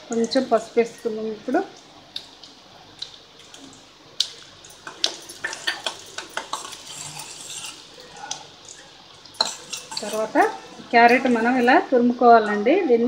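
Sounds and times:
oil sizzling: 0.0s - 13.0s
spoon scraping metal pan: 5.3s - 8.5s, 9.4s - 12.6s
metal clinks: 9.4s - 11.8s.

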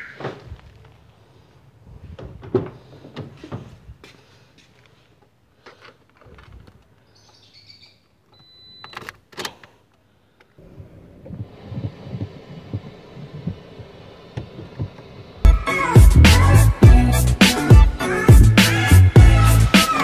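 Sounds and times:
car engine starting and running: 10.6s - 15.5s.

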